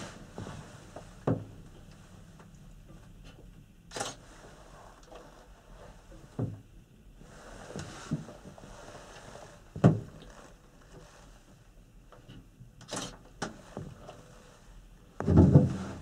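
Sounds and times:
gondola cabin knocking and clunking: 15.2s - 16.0s
heavy thump: 15.2s - 16.0s.

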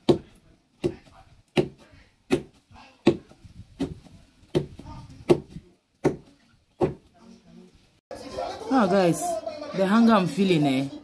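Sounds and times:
wooden pestle thudding in mortar: 0.0s - 7.1s.

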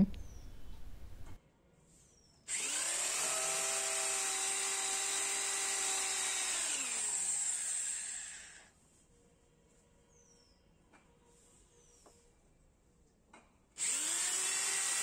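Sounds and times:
electric drill boring clay: 2.5s - 8.7s, 13.8s - 15.0s.

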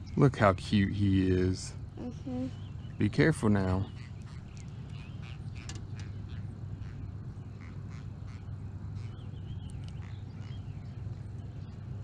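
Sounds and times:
steady low hum: 0.0s - 12.0s
catfish creaky squeaks and clicks: 4.0s - 6.2s.

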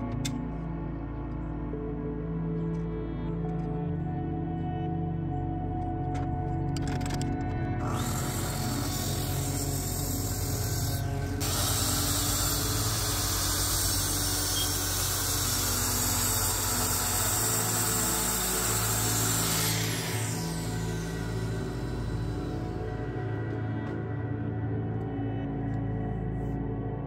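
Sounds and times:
background music: 0.0s - 27.0s
power tool running: 7.8s - 24.0s.

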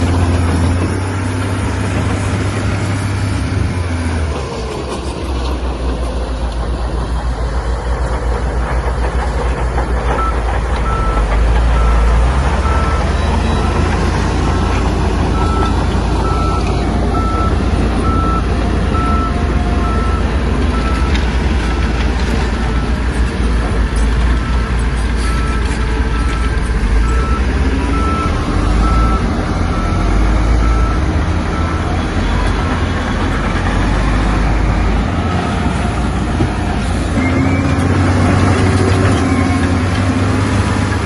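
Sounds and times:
diesel engine running under load: 0.0s - 41.0s
reversing alarm beeping: 10.2s - 21.2s, 24.3s - 32.8s.

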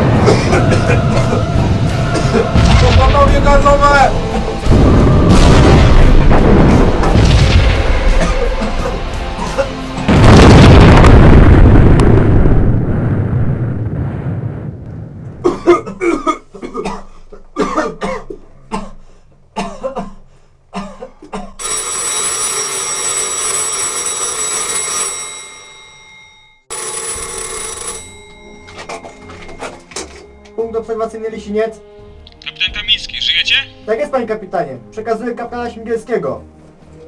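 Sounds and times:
men coughing: 0.0s - 2.6s, 8.2s - 10.1s, 15.5s - 19.0s, 19.6s - 21.6s
artillery shell explosion: 2.5s - 3.4s, 4.7s - 8.2s, 10.1s - 15.4s
telephone bell ringing: 21.6s - 30.3s.

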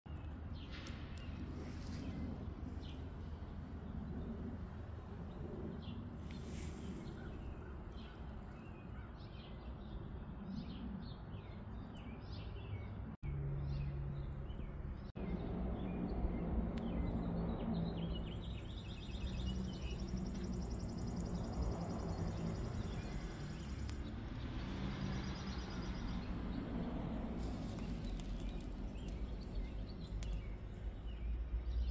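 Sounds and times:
birds chirping: 0.1s - 31.9s.

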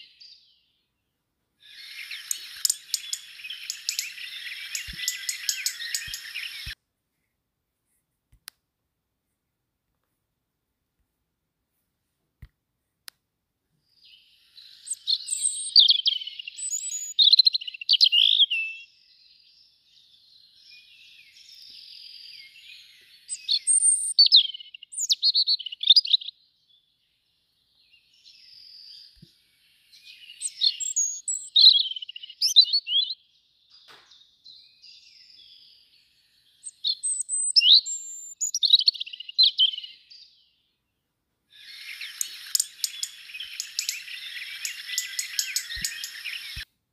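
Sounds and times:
songbird warbling: 1.6s - 6.8s, 14.0s - 18.9s, 28.2s - 33.1s, 41.6s - 46.6s.

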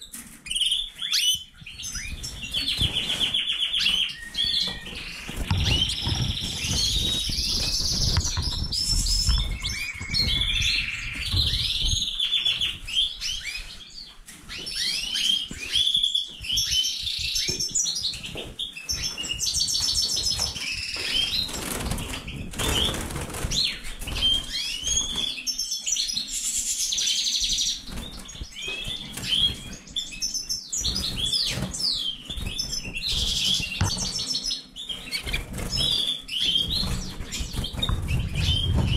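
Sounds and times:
finches chirping and singing: 0.1s - 38.9s.

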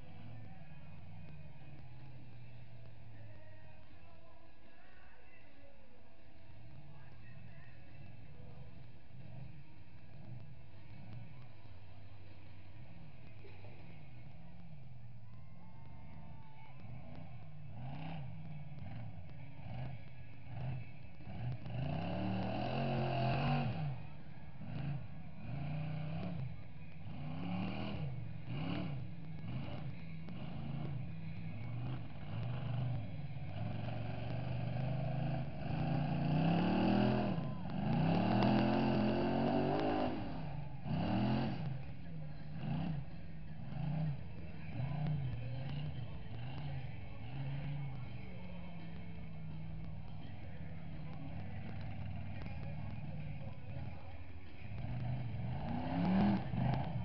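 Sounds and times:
truck engine revving: 15.8s - 57.0s.

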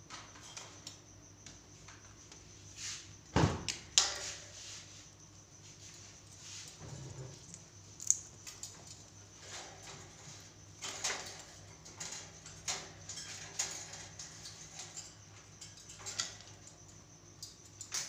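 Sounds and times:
faint low hum: 3.3s - 18.0s
clicks and taps on wire cage: 8.0s - 18.0s.

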